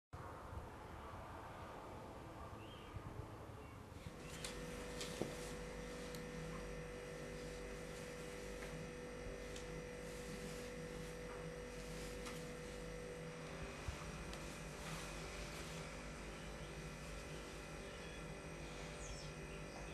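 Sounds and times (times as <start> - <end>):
electrical hum with tones: 0.2 - 19.9.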